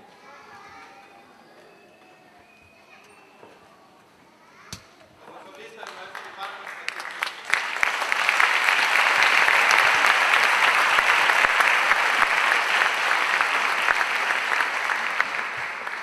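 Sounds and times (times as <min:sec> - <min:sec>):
audience applauding: 0:05.5 - 0:16.0.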